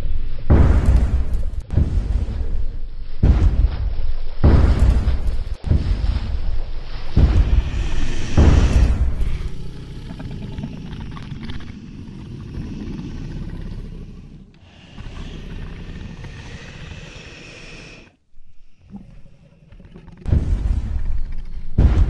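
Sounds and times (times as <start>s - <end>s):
hiss: 0.0s - 22.0s
low rumbling noise: 0.0s - 22.0s.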